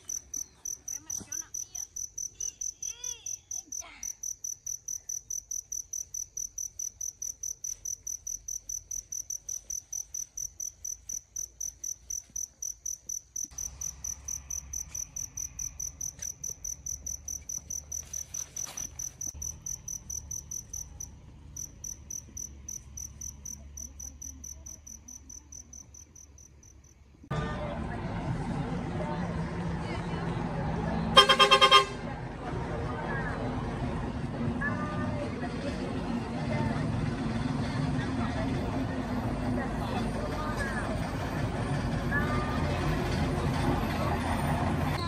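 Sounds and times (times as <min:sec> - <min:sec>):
insect chirping: 0:00.0 - 0:27.1
street noise: 0:00.0 - 0:45.0.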